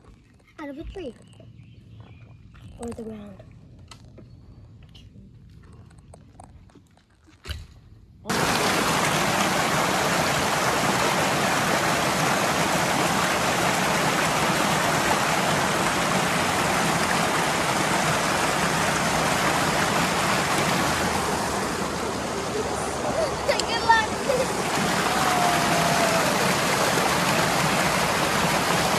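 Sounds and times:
running water rushing: 8.3s - 28.9s.

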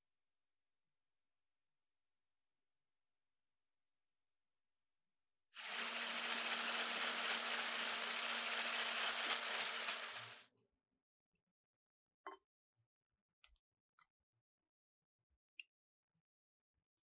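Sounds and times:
electric hand mixer whirring: 5.6s - 10.4s.

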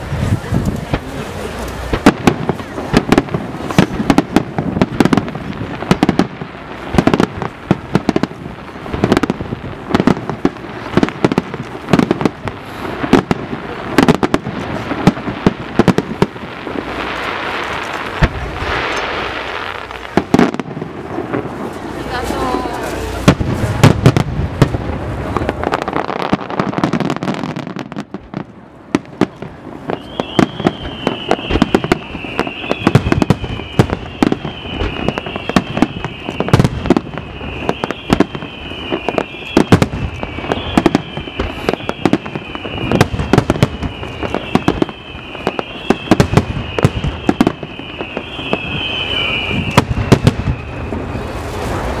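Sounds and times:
fireworks bangs and crackles: 0.0s - 52.0s
wavering high whistle: 29.9s - 51.4s.

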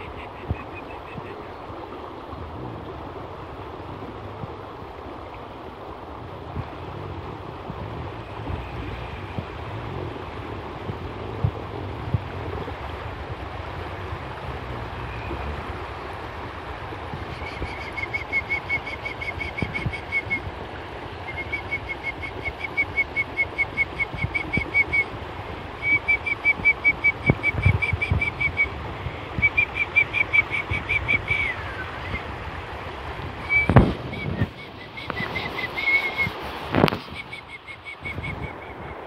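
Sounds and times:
stream water rushing over rocks: 0.0s - 39.0s
bird whistling fast high notes: 33.4s - 36.4s.

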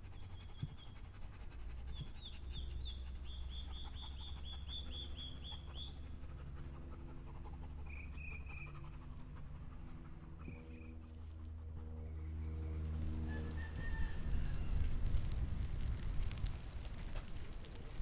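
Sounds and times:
dog panting softly: 0.0s - 12.0s
low steady drone: 0.0s - 16.4s
bird chirping: 1.9s - 6.0s, 7.8s - 8.8s.

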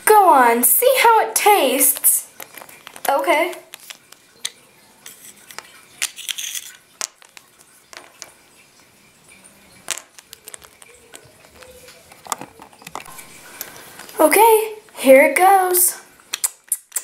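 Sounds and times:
plastic toys clicking and tapping: 1.8s - 8.4s, 9.8s - 14.2s, 16.3s - 17.0s
paper packet crinkling: 2.3s - 7.7s.

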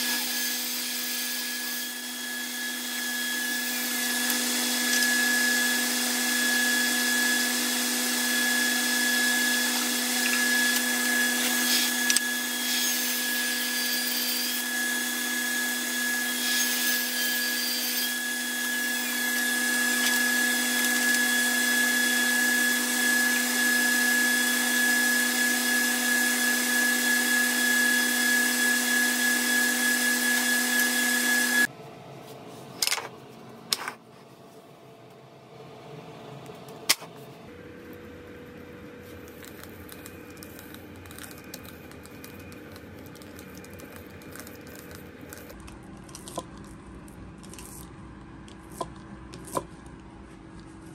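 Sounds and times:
table saw ripping boards: 9.0s - 21.8s.

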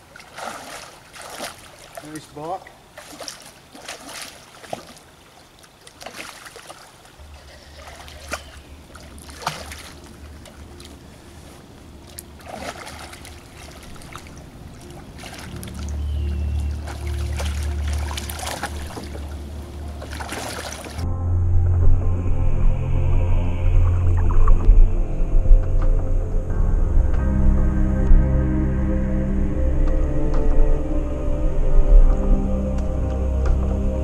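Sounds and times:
fish splashing in river: 0.0s - 2.2s, 2.9s - 21.0s
background music: 7.2s - 34.0s.

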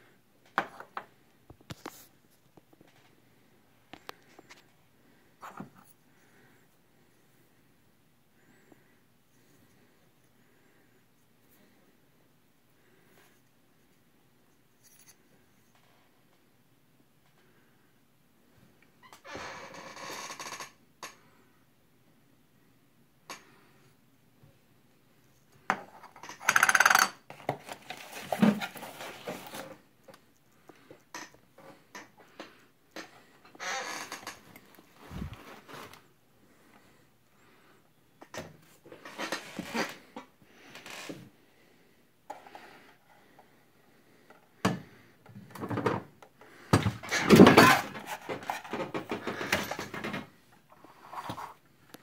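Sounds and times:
objects clattering on a desk: 0.5s - 1.9s, 25.6s - 29.8s, 45.4s - 46.1s, 46.7s - 50.4s.

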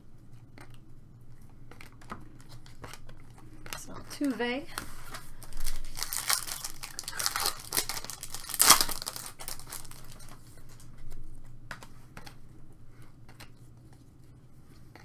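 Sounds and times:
cards sliding and ticking: 0.4s - 5.7s, 9.4s - 15.0s
foil wrapper tearing and crinkling: 5.3s - 10.4s.

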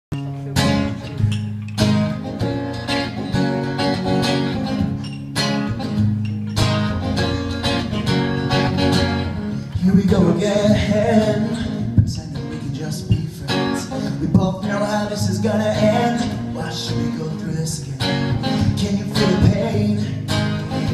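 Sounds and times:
acoustic guitar strumming: 0.1s - 20.9s
man singing: 9.7s - 20.9s.

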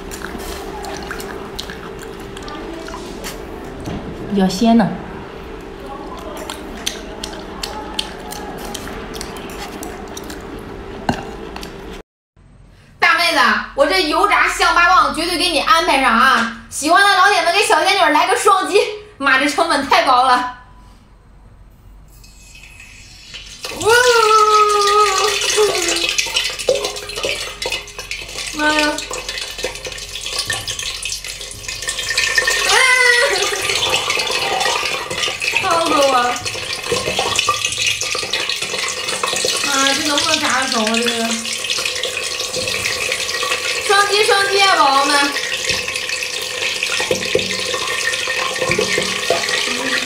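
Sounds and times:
wet mouth clicks and smacks: 0.0s - 2.6s, 6.1s - 10.5s
oil sizzling and crackling: 0.0s - 4.0s, 22.2s - 50.0s
steady low hum: 0.0s - 13.0s
rising cry: 23.6s - 26.2s.

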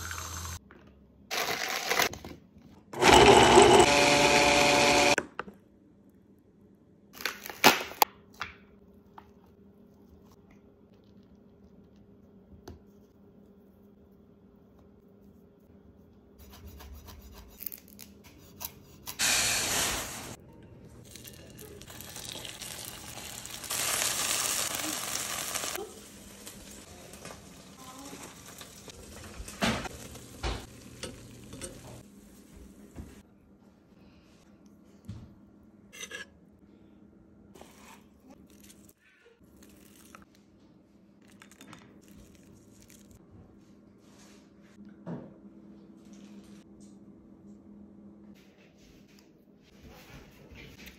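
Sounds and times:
oil sizzling in a frying pan: 21.9s - 31.5s
utensils scraping ceramic bowl: 36.0s - 36.4s.

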